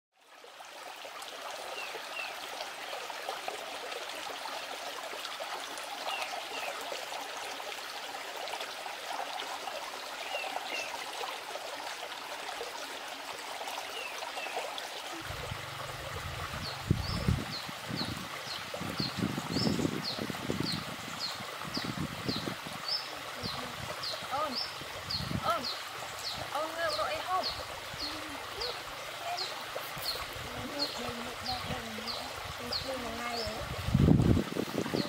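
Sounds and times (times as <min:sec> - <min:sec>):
stream trickling over rocks: 0:00.1 - 0:35.0
low rumble: 0:15.2 - 0:17.5.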